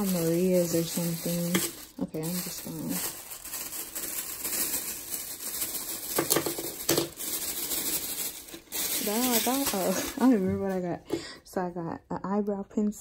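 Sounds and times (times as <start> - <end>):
sharp plastic crackles: 0.0 - 10.6
plastic bags rustling: 0.0 - 11.0.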